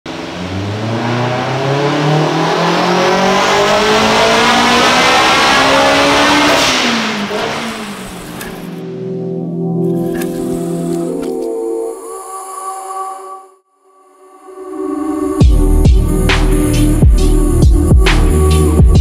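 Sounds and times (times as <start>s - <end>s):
car engine revving: 0.1s - 11.3s.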